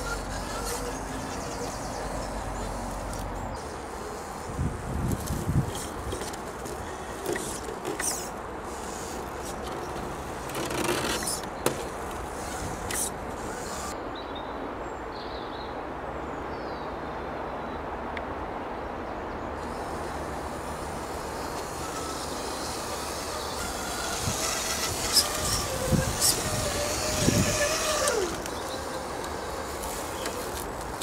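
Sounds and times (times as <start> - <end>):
small electric motor and gears: 0.0 - 14.0, 19.6 - 31.0
tyres scraping and knocking: 5.1 - 13.9, 21.6 - 31.0.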